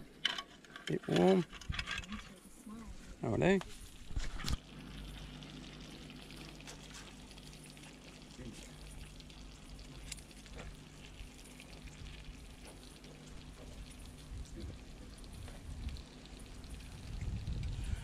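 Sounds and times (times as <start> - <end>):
sauce sizzling and crackling: 3.7 - 18.0.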